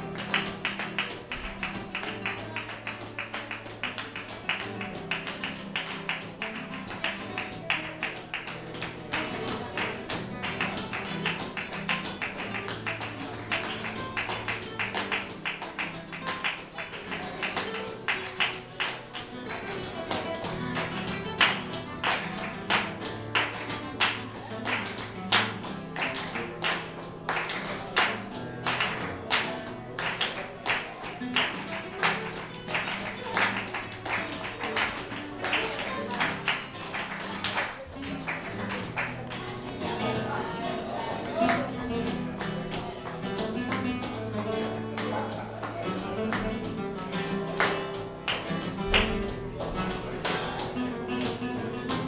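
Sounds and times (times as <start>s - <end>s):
flamenco guitar playing: 0.0s - 52.0s
rhythmic hand-clapping: 0.0s - 52.0s.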